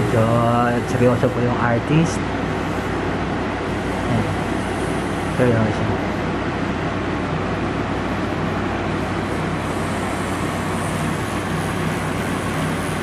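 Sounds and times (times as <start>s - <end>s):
tattoo machine buzzing: 0.0s - 3.0s, 3.6s - 5.6s, 9.0s - 13.0s.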